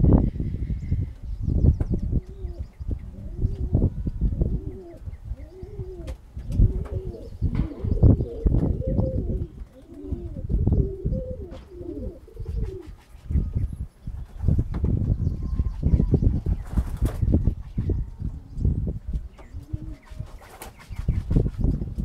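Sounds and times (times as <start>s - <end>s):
pigeons cooing: 1.8s - 13.7s, 19.3s - 21.2s.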